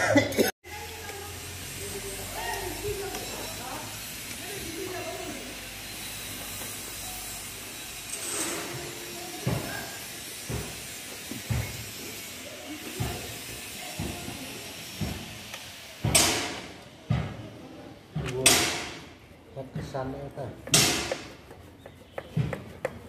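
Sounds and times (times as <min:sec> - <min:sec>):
harsh metal scraping: 0:01.6 - 0:12.5.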